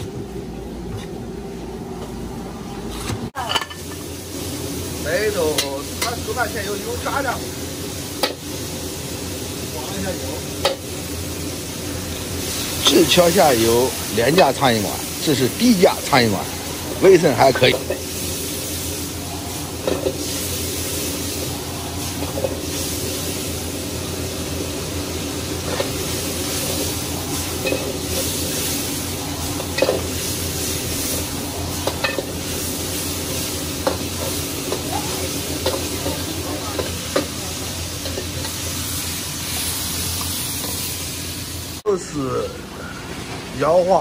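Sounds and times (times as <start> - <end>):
food sizzling in a wok: 0.0 - 44.0.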